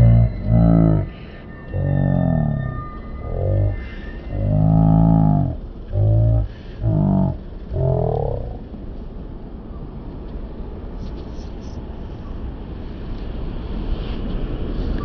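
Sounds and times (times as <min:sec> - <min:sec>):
person making drawn-out vocal sounds: 0:00.0 - 0:01.1, 0:01.7 - 0:08.6
street traffic noise: 0:00.0 - 0:15.0.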